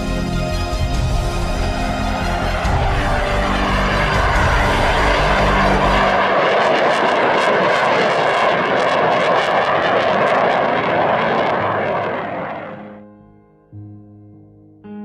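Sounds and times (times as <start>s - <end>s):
jet aircraft flying past: 0.0s - 13.1s.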